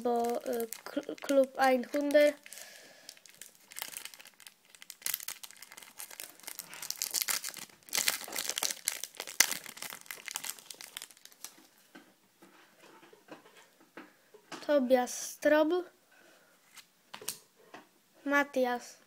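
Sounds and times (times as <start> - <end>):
foil pack crinkling: 0.0 - 11.6.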